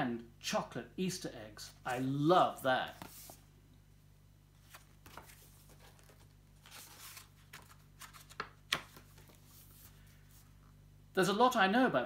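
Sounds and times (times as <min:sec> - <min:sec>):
book pages rustling: 0:02.8 - 0:03.5, 0:04.6 - 0:10.7.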